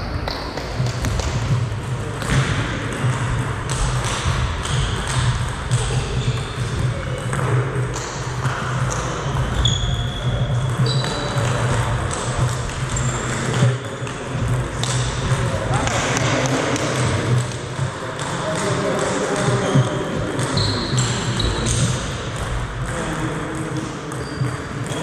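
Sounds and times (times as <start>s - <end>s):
shoe squeaks on wooden floor: 9.4s - 11.4s, 20.5s - 21.8s.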